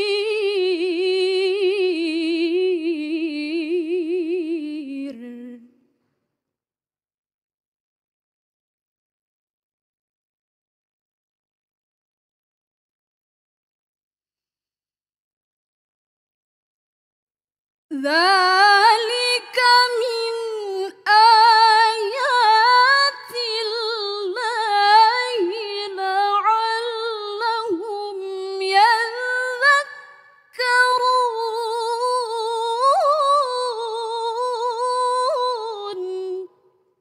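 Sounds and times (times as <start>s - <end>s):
woman reciting melodically: 0.0s - 5.7s, 17.9s - 36.6s.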